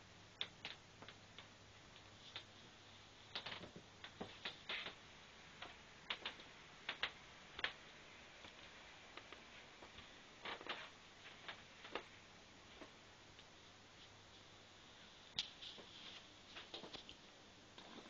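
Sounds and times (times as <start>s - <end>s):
faint low hum: 0.0s - 18.0s
light clicks and taps: 5.6s - 14.5s.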